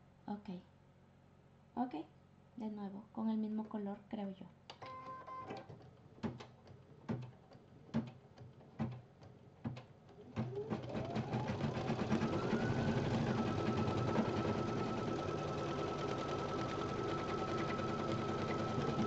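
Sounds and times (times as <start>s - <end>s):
embroidery machine stitching: 10.1s - 19.0s.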